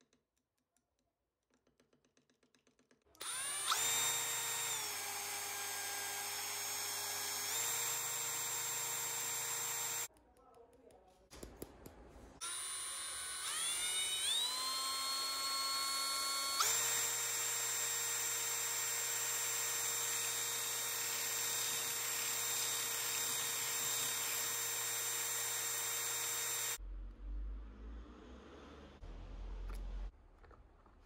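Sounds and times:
electric drill mixing liquid: 3.2 - 10.1, 12.4 - 26.8.

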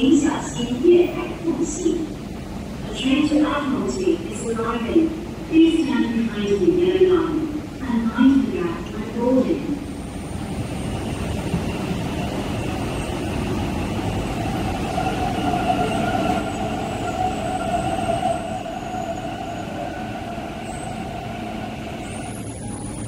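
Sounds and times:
train braking with rumble and whine: 0.0 - 23.0.

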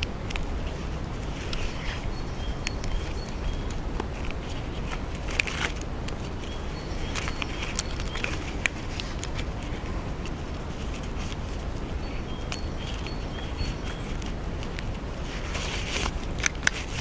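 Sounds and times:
hammock straps clicking and rustling: 0.0 - 17.0
steady low rumble: 0.0 - 17.0
high bird chirps: 1.3 - 4.6, 6.2 - 9.0, 11.5 - 14.6.

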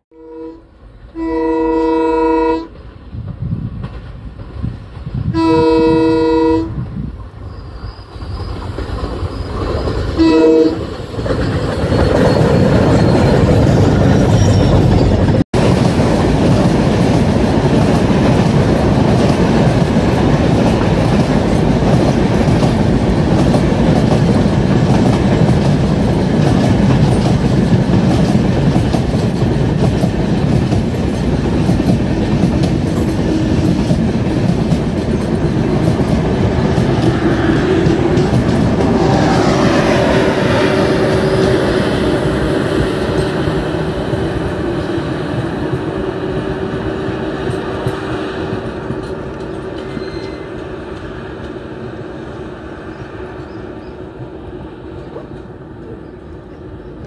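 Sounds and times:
locomotive horn blast: 0.1 - 2.7, 5.3 - 6.8, 10.2 - 10.9, 33.2 - 33.8, 37.1 - 44.1
train wheels rumbling on rails: 2.6 - 57.0.

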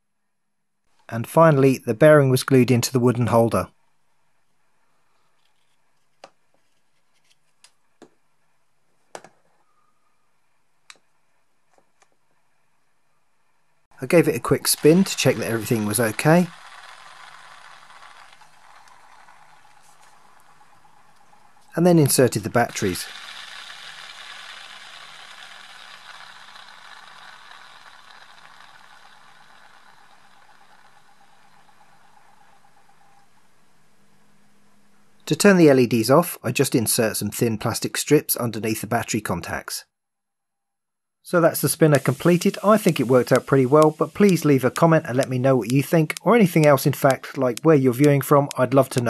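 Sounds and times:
fidget spinner whirring: 14.0 - 33.6, 41.3 - 49.0.

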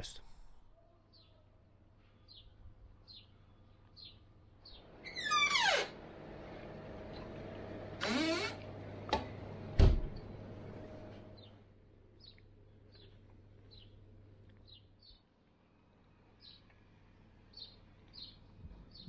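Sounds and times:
small birds chirping: 0.8 - 5.8, 11.2 - 19.0
drinks cabinet humming: 5.9 - 11.6.

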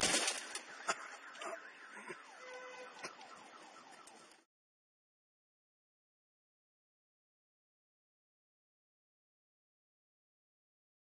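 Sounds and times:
faint warbling siren: 0.1 - 4.5.

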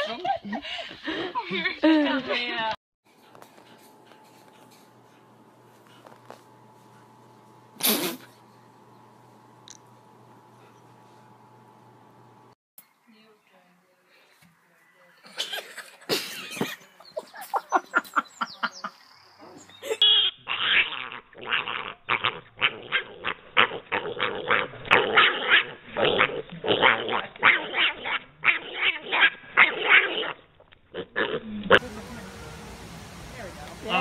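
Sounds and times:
piglet squealing: 20.0 - 30.4.

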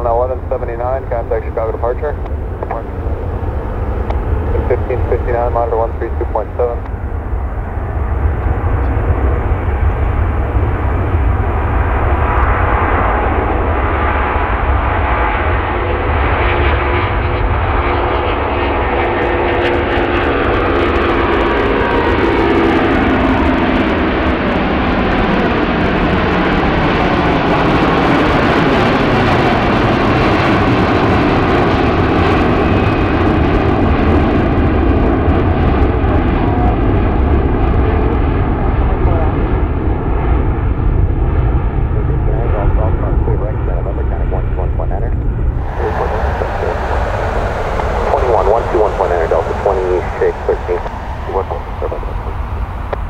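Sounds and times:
jet airliner taking off: 0.0 - 53.0.

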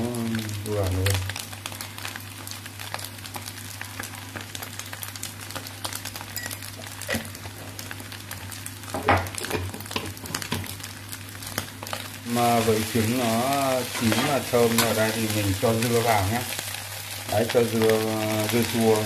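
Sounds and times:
rice sizzling in hot oil: 0.0 - 19.0.

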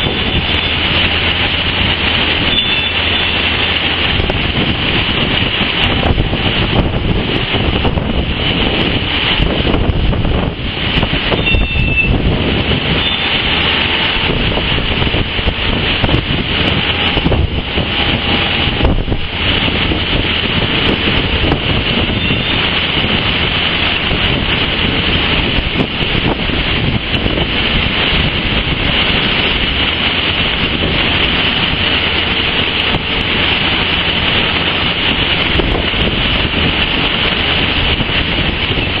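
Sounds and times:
skid-steer loader engine running: 0.0 - 39.0
steady loud hiss: 0.0 - 39.0
site dumper engine running: 12.0 - 39.0.

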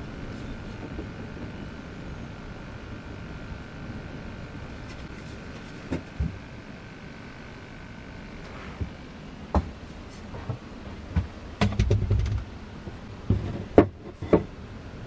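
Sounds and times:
wooden and metal knocks: 11.2 - 12.4, 13.3 - 14.5.

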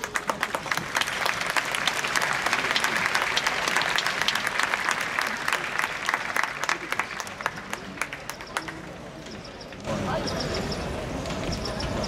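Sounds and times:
crowd applause: 0.0 - 9.0.

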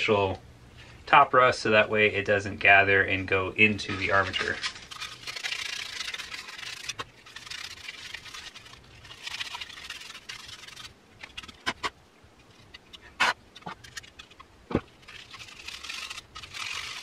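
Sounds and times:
scraping rust off metal: 3.8 - 17.0.

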